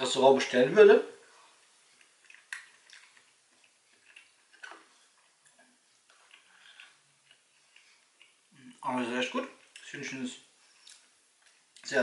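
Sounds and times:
chewing: 1.4s - 8.8s, 10.7s - 11.9s.

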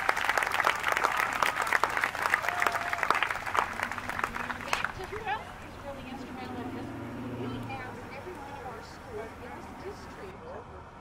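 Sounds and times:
crowd clapping: 0.0s - 5.5s.

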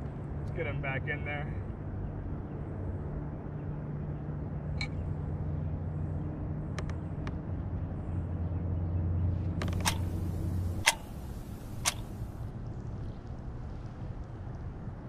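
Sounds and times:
low motor hum: 4.8s - 15.0s
light clicks: 9.6s - 12.3s.

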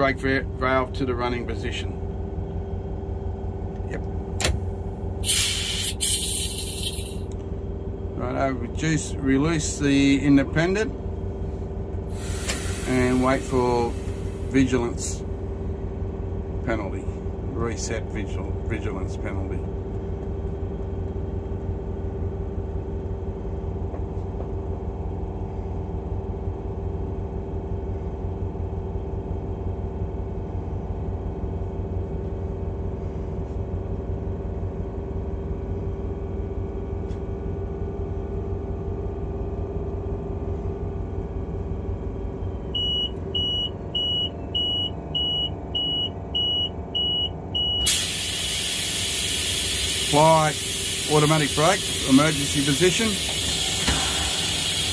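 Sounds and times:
diesel engine running: 0.0s - 54.9s
rapid high alarm beeps: 42.7s - 47.9s.

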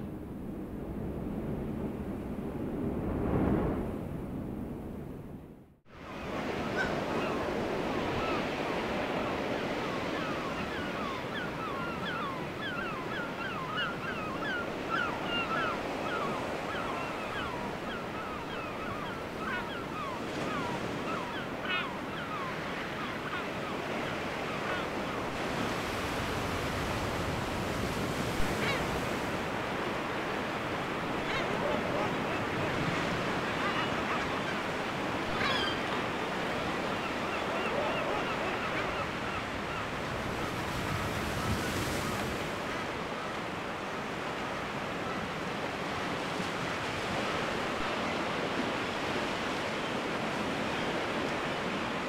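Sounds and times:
surf: 0.0s - 5.3s, 5.9s - 52.0s
wind: 0.0s - 52.0s
seabirds calling: 6.1s - 26.2s, 26.8s - 41.9s, 47.1s - 52.0s.

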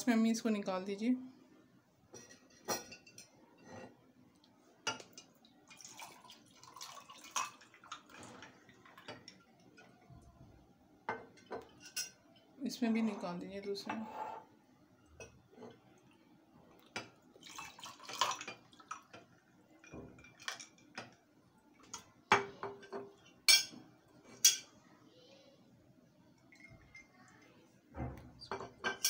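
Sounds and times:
lemonade pouring over ice: 5.7s - 8.1s.

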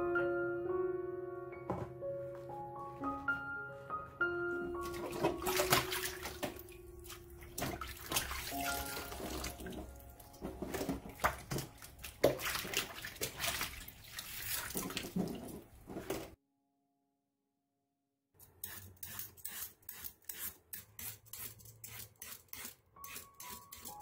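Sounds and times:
light melodic music: 0.0s - 12.9s, 22.8s - 24.0s
water splashing in a basin: 4.8s - 16.4s.

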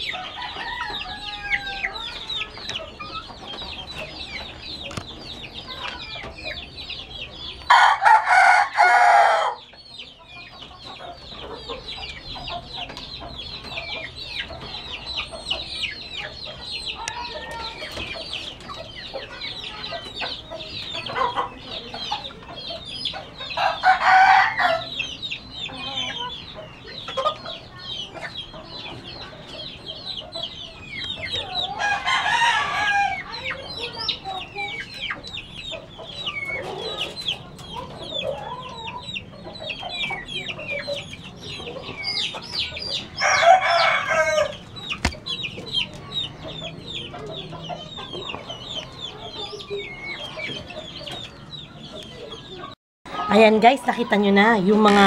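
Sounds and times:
chickens peeping and clucking: 0.0s - 55.0s
cockerel crowing: 0.1s - 2.2s, 7.7s - 9.6s, 23.6s - 24.9s, 43.2s - 45.2s.

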